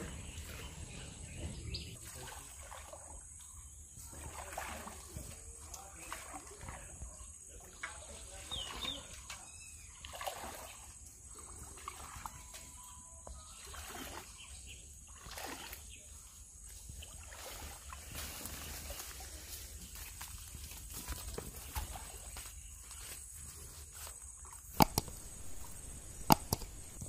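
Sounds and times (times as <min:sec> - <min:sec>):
river water sloshing and splashing: 0:02.0 - 0:07.0, 0:07.6 - 0:12.9, 0:13.5 - 0:16.2, 0:16.9 - 0:19.3.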